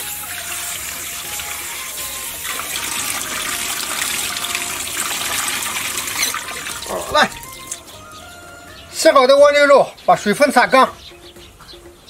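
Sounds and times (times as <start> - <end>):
tap water splashing: 0.0 - 7.8.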